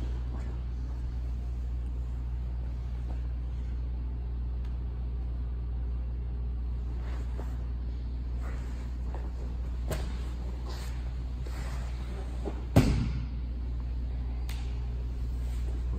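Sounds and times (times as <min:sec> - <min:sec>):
steady low hum: 0:00.0 - 0:15.9
soft taps and rustles on a mat: 0:08.4 - 0:13.2.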